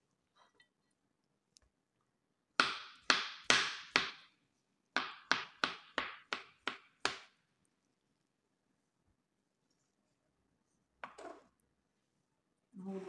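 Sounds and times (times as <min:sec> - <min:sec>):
knife chopping on plastic board: 0:02.6 - 0:04.3, 0:05.0 - 0:07.3.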